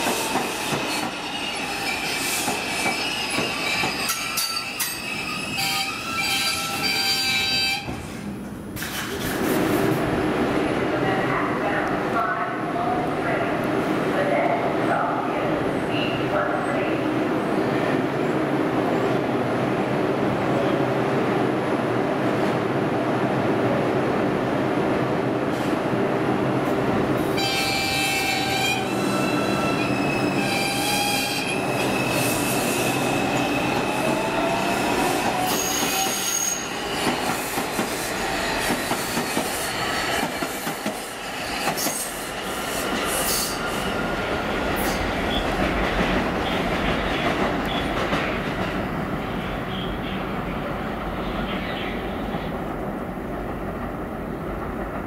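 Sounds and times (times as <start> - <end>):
train wheels rumbling on rails: 0.0 - 7.2, 25.4 - 55.0.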